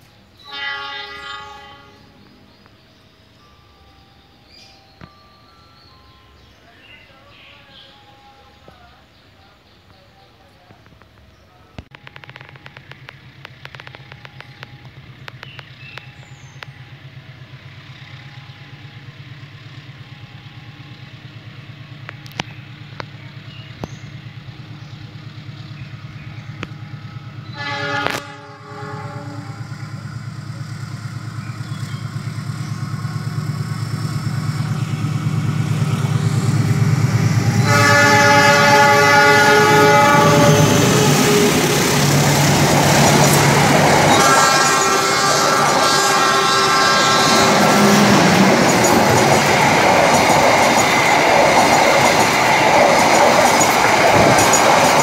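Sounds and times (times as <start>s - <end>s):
diesel locomotive approaching: 0.0s - 55.0s
locomotive horn blast: 0.4s - 2.4s, 27.0s - 30.7s, 34.8s - 49.4s.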